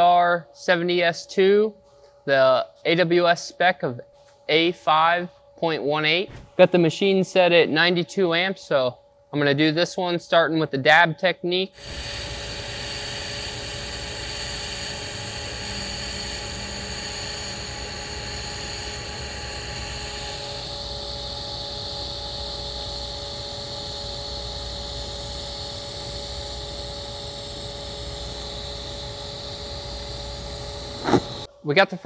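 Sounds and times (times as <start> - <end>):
faint steady hum: 0.0 - 32.0
welding arc hissing: 11.8 - 31.5.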